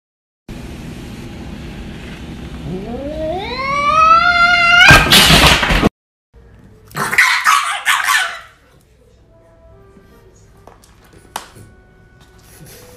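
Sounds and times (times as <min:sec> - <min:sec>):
cat yowling: 0:02.7 - 0:05.1.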